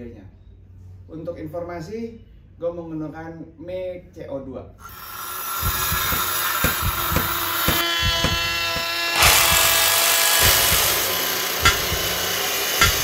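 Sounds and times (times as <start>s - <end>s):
router cutting wood: 4.8s - 13.0s
circular saw motor whine: 4.9s - 13.0s
low thumps: 5.6s - 13.0s.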